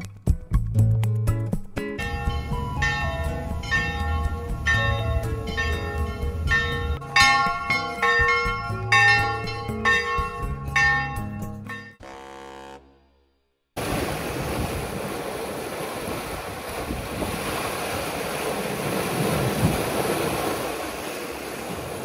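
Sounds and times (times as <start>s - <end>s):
church bells ringing: 2.0s - 12.0s.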